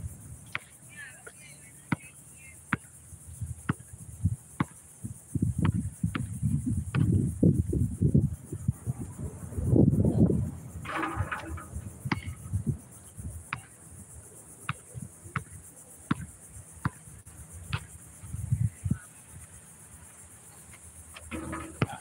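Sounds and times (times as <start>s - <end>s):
insects buzzing: 0.0s - 22.0s
basketball bouncing on concrete: 16.1s - 17.0s, 21.2s - 22.0s
heavy thump: 21.2s - 22.0s.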